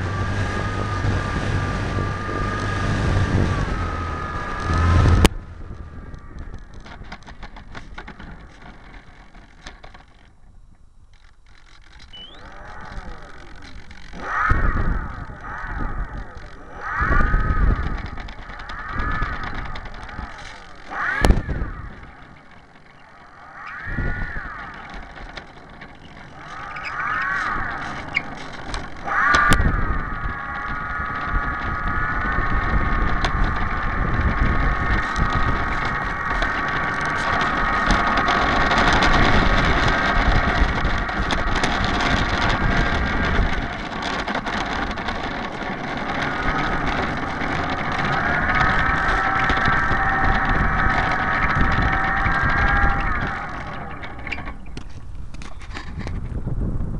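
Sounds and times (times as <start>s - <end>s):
electric motor whine: 0.0s - 9.1s
wind rumble on microphone: 0.0s - 56.9s.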